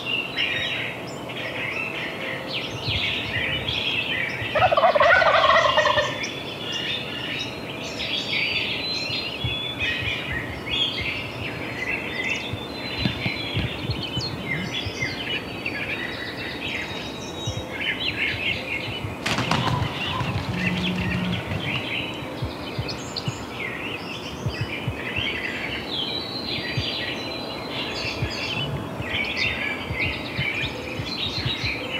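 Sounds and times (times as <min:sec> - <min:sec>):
songbirds chirping and singing: 0:00.0 - 0:31.9
turkey gobbling: 0:04.6 - 0:06.2, 0:19.3 - 0:21.6.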